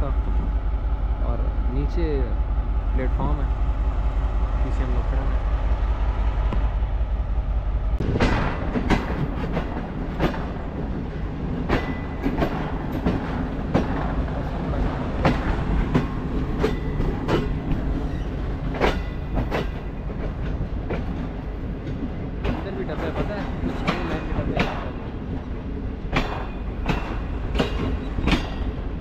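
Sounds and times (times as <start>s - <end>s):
railway carriages rumbling: 0.0s - 29.0s
train wheels clacking over joints: 8.1s - 29.0s.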